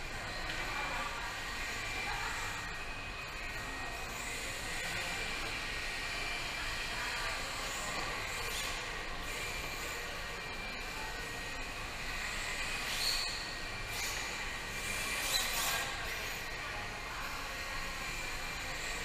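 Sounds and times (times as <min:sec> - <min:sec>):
indoor hall hum: 0:00.0 - 0:19.0.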